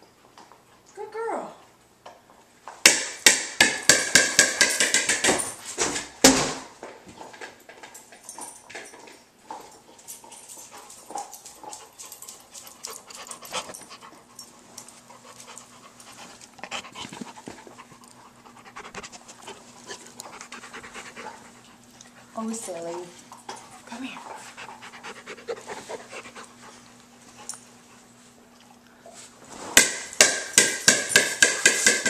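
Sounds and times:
dog panting: 10.2 - 28.8.

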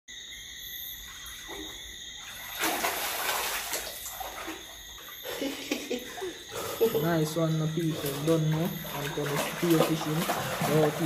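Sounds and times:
water splashing and rushing: 2.3 - 4.9, 6.9 - 11.0.

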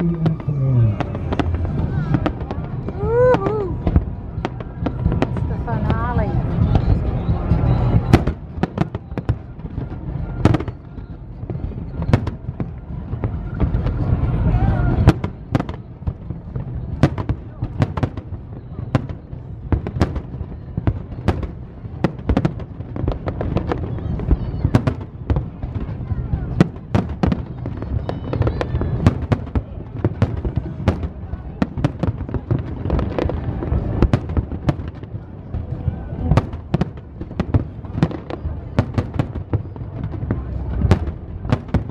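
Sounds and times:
low rumble: 0.0 - 19.7
fireworks bursting with sharp bangs: 0.0 - 41.9
steady low rumble: 0.0 - 41.9.

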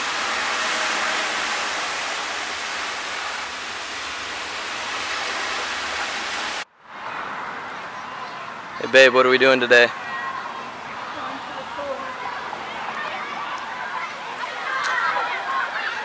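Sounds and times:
car splashing through water: 0.0 - 6.6
heavy rain hissing: 0.0 - 6.6.

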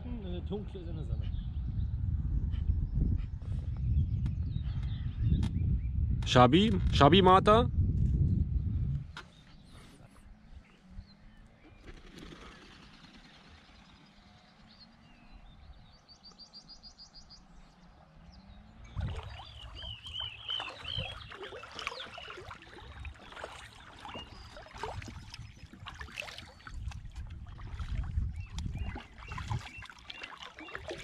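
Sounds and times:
faint birdsong: 0.0 - 6.2, 8.5 - 31.0
bird chirping: 9.2 - 25.4, 28.3 - 31.0
paddle splashing in water: 19.0 - 31.0.

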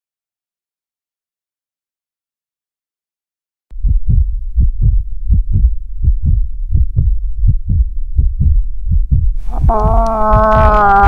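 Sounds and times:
heartbeat thumps: 3.7 - 11.0.

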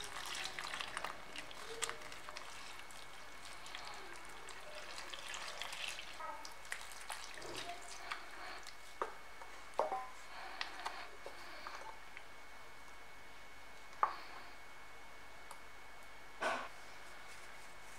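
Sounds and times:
liquid pouring: 0.0 - 8.7
spoon stirring wet batter: 0.0 - 9.6.

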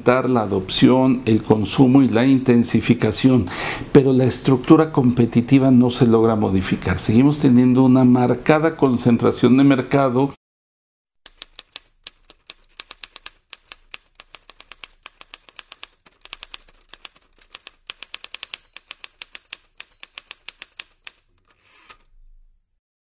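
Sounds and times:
typewriter keys clacking: 11.3 - 22.1
soft rasp: 21.5 - 22.2.

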